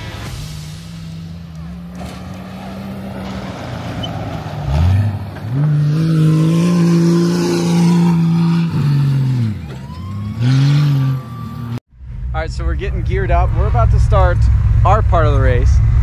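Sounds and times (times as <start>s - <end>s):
race engine revving: 0.0s - 11.8s.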